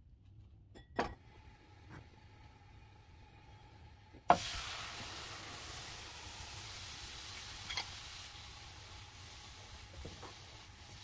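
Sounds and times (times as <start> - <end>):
food sizzling in hot oil: 4.3 - 11.0.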